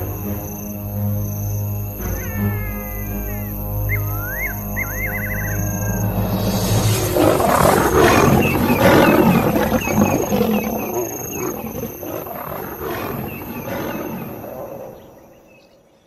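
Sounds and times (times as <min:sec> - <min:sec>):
high chirping: 0:02.0 - 0:12.0
lions roaring: 0:04.3 - 0:15.1.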